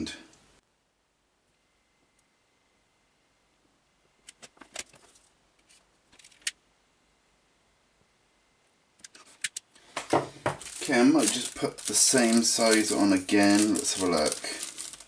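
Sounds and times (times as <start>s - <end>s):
cable handling clicks and rustles: 4.2s - 6.6s, 9.0s - 15.0s.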